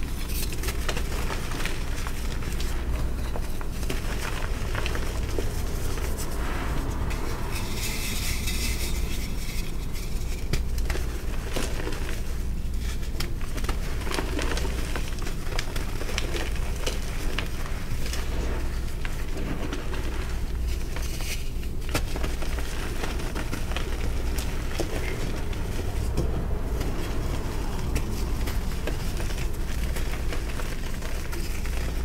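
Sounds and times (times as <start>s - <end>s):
hissy powder rubbing: 0.0s - 15.0s, 15.8s - 32.0s
steady low hum: 0.0s - 32.0s.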